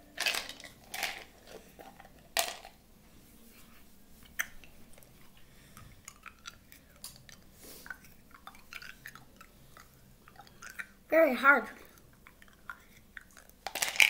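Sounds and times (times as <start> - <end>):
ice cubes crunched in mouth: 12.7 - 14.0.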